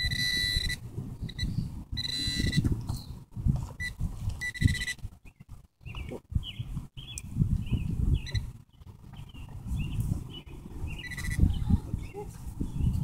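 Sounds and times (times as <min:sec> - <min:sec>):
metal detector beeping: 0:00.0 - 0:02.8, 0:03.8 - 0:05.1, 0:08.2 - 0:08.5, 0:10.9 - 0:11.6.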